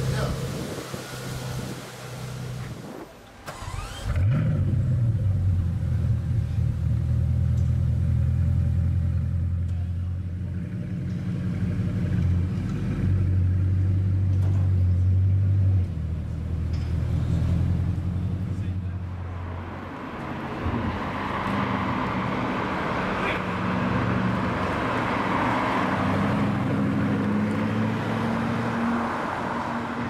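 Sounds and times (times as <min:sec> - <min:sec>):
car engine starting and idling: 0:00.0 - 0:18.4.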